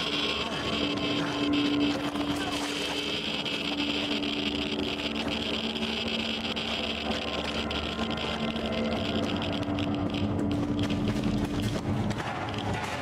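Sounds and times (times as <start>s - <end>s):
geiger counter clicking: 0.0s - 13.0s
steady low hum: 0.0s - 13.0s.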